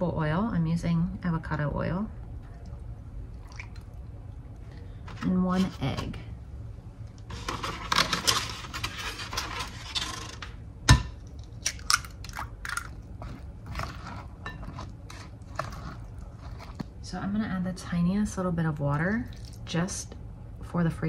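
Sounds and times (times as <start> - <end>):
spatula stirring batter in glass bowl: 13.2 - 17.0.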